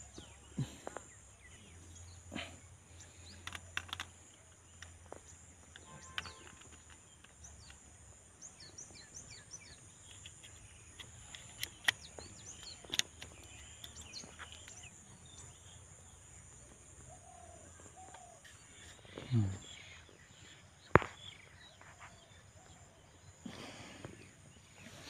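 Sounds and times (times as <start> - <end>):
small birds chirping: 0.0 - 25.0
phone clicking into plastic mount: 10.0 - 14.8.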